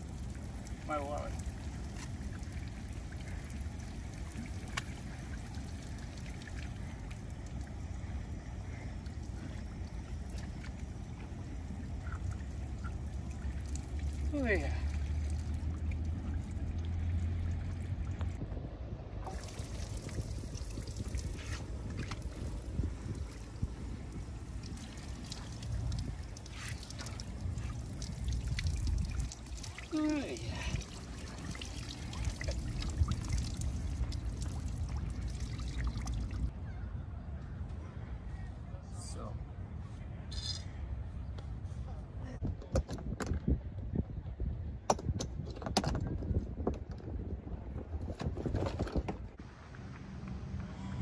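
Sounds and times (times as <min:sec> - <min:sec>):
water trickling and lapping: 0:00.0 - 0:18.4, 0:19.2 - 0:36.5
steady low rumble: 0:00.0 - 0:38.8.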